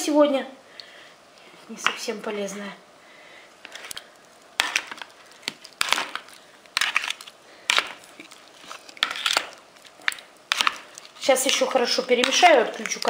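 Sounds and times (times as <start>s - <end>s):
spoon stirring in plastic bowl: 4.6s - 13.0s.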